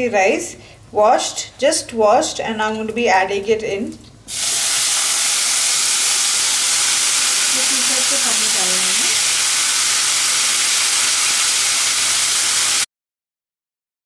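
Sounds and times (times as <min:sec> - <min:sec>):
rice sizzling in hot oil: 0:04.3 - 0:12.9.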